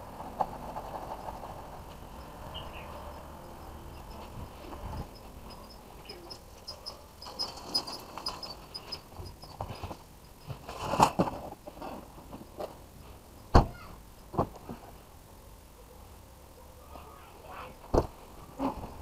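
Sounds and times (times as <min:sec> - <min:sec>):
rustling: 0:00.0 - 0:13.4.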